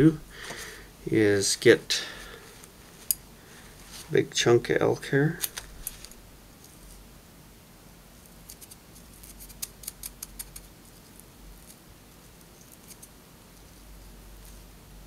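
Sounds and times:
scissors snipping hair: 8.4s - 10.7s, 12.6s - 13.1s.

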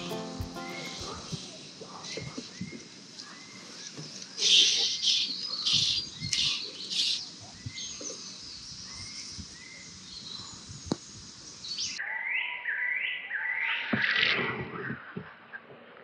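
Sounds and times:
birds singing and chirping: 0.0s - 14.0s.

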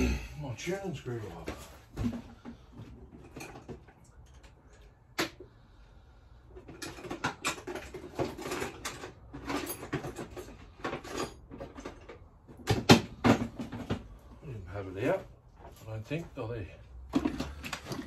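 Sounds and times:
parts clattering and clicking: 1.4s - 5.6s, 6.4s - 14.4s, 16.8s - 18.0s.

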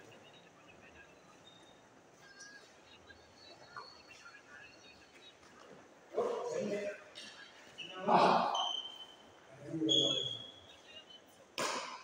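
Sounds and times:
shoes squeaking on court floor: 7.2s - 9.3s.

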